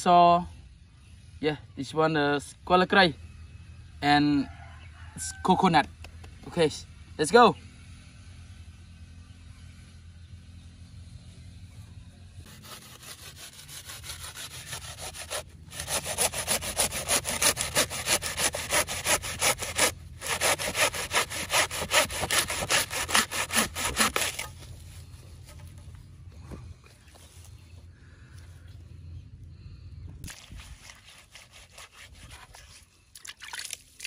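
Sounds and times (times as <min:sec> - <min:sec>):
hand saw cutting coconut husk: 0:12.4 - 0:24.8, 0:30.3 - 0:32.8.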